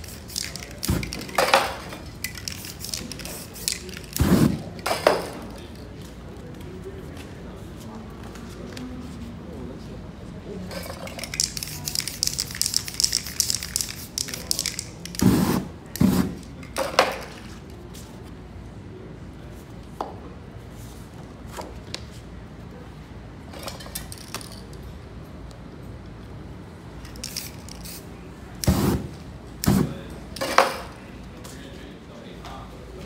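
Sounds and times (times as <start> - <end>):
spray can hissing: 0.0 - 5.4, 11.1 - 16.4, 27.1 - 28.0, 28.6 - 29.9.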